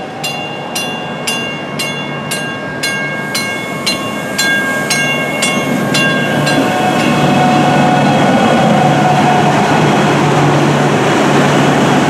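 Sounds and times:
train bell ringing: 0.0s - 7.7s
electric train passing with whine: 0.0s - 12.0s.

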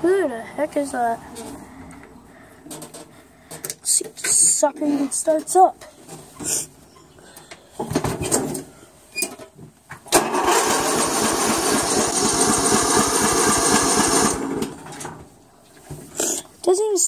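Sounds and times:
lawn mower engine cranking: 10.0s - 15.2s.

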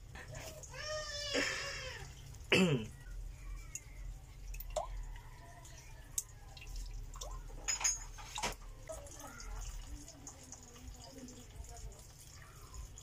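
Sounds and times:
egg white dripping: 0.0s - 13.0s.

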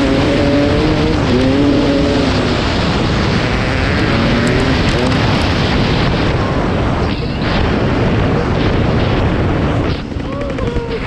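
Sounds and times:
two-stroke motorcycle engine revving: 0.0s - 6.8s
wind buffeting microphone: 0.0s - 11.0s.

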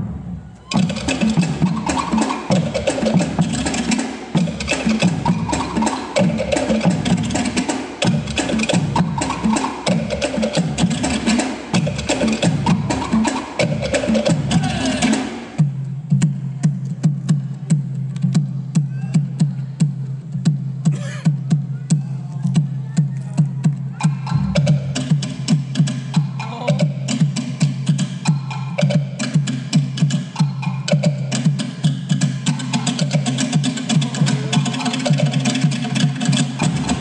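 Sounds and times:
wooden slit drums struck with sticks: 24.0s - 27.2s
sharp drum strokes: 24.0s - 27.4s, 33.0s - 37.0s.

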